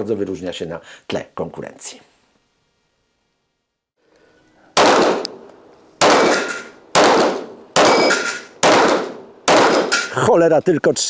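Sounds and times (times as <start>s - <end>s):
pistol shots: 4.8s - 10.1s
steel targets ringing: 6.0s - 6.8s, 7.8s - 8.6s, 9.5s - 10.2s.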